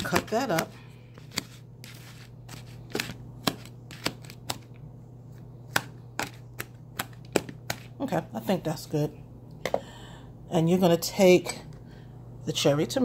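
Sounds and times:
knife cutting vegetable strands: 0.0s - 4.7s.

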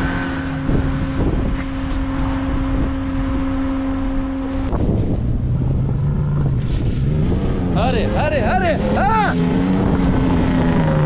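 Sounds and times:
wind on microphone: 0.0s - 8.8s, 9.4s - 11.0s
car engine driving on dirt: 0.0s - 11.0s
steady hum: 0.7s - 6.6s.

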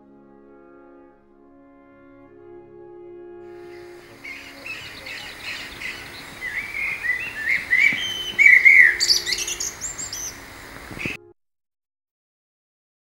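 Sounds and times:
songbird singing: 3.5s - 11.2s.

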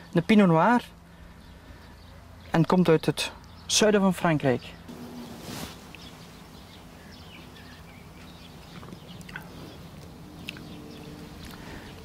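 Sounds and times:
low steady hum: 4.8s - 12.0s.

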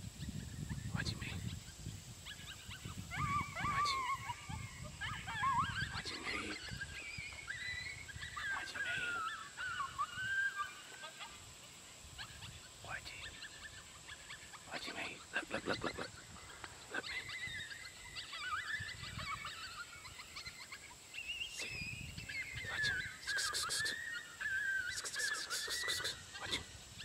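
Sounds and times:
coyote yipping: 0.3s - 27.0s
coyote howling: 2.2s - 11.5s, 12.1s - 27.0s.

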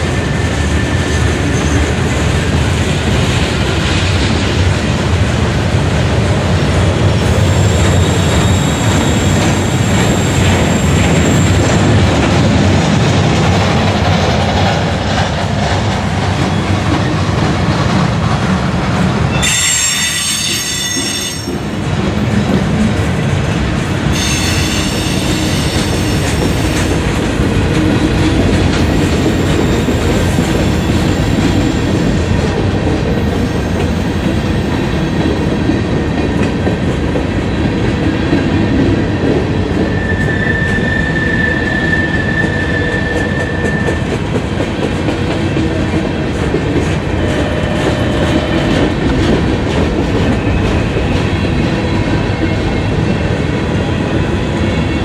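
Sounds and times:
train wheels rumbling on rail: 0.0s - 55.0s
high-pitched wheel squeals: 19.3s - 21.5s, 39.9s - 44.0s.

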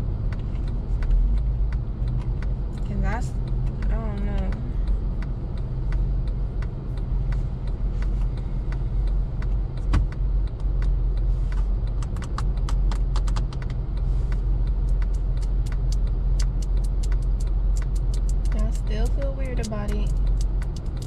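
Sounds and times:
car engine idling: 0.0s - 21.0s
small sharp clicks and taps: 9.4s - 21.0s.

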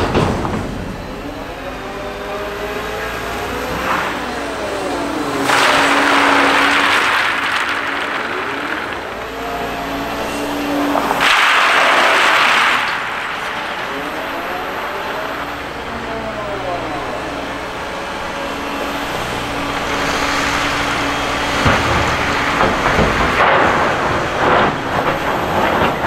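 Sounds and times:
diesel engine and hydraulics: 0.0s - 26.0s
crushed stone pouring: 5.1s - 15.4s.

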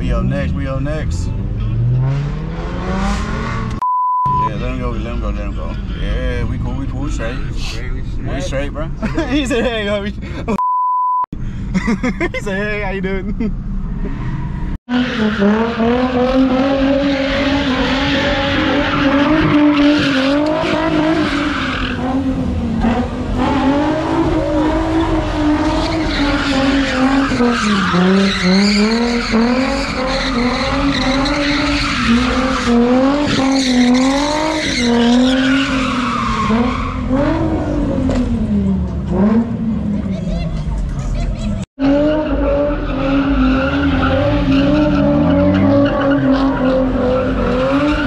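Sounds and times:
car engine revving: 0.0s - 3.8s, 12.6s - 48.0s
tires squealing: 13.8s - 48.0s.

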